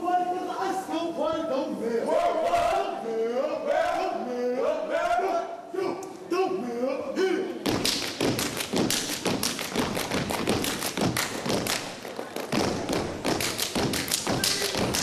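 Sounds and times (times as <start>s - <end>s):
body percussion: 7.6s - 15.0s
synchronized stomps on stage floor: 7.6s - 15.0s.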